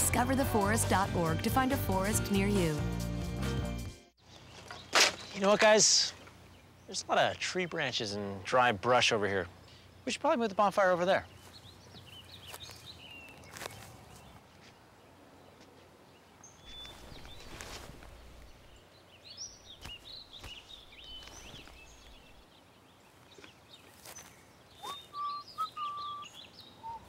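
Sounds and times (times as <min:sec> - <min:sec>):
birds chirping: 0:04.2 - 0:27.0
whistled bird note: 0:24.8 - 0:27.0.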